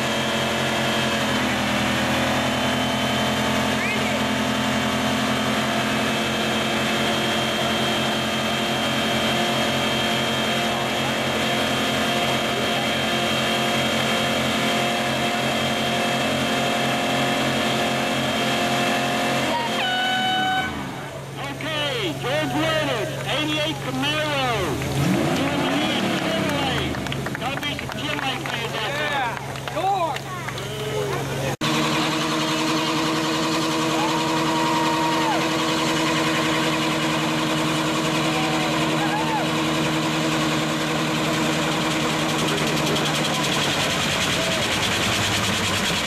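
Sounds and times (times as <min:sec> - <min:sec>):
car engine at high revs: 0:00.0 - 0:46.0
tyres squealing on pavement: 0:02.8 - 0:04.6.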